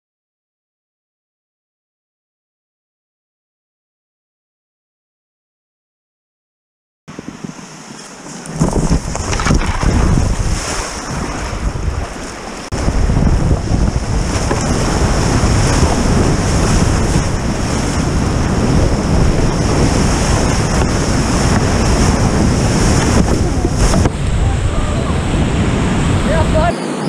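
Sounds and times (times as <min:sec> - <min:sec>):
wind buffeting microphone: 0:07.1 - 0:27.0
rushing whitewater: 0:07.2 - 0:13.2, 0:14.0 - 0:27.0.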